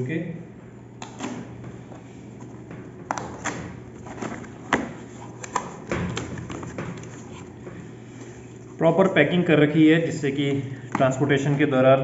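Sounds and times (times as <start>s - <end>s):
cardboard flaps scraping: 3.1s - 8.6s.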